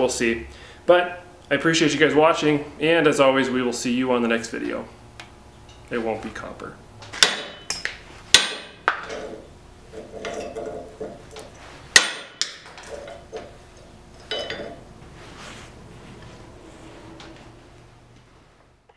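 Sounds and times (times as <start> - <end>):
metal clinks and knocks: 10.0 - 11.4, 12.0 - 14.9
metal rattle: 14.2 - 14.9.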